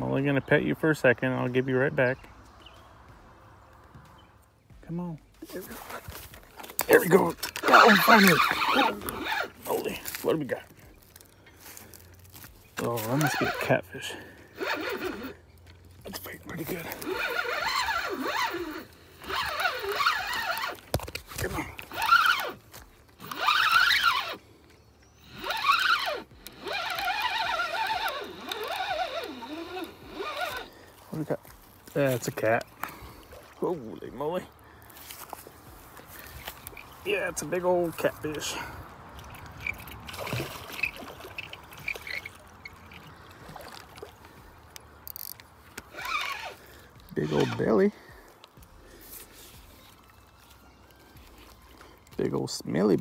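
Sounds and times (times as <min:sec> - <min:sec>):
water sloshing and trickling: 0:05.3 - 0:53.0
fishing reel whining: 0:05.8 - 0:10.0, 0:12.7 - 0:31.0, 0:36.2 - 0:48.3.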